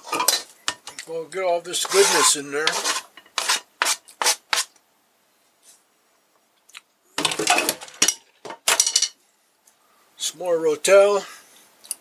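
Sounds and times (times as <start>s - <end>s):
utensils clattering: 0.0s - 0.8s, 7.2s - 9.2s
knife scraping cutting board: 1.8s - 4.7s.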